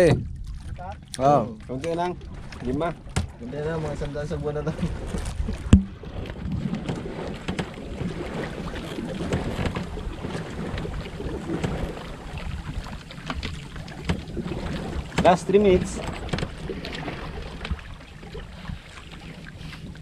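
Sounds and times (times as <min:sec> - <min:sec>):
sharp knock: 0:05.7 - 0:06.0.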